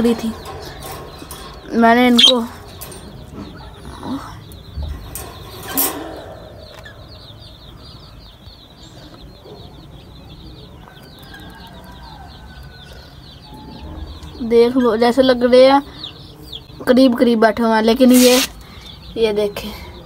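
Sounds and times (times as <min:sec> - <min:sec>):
budgerigars chirping: 0:00.2 - 0:17.0, 0:17.8 - 0:19.1.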